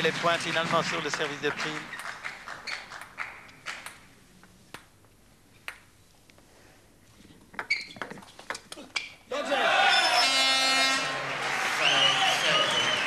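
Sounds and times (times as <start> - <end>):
table tennis ball clicking: 3.7 - 4.1, 5.6 - 5.9.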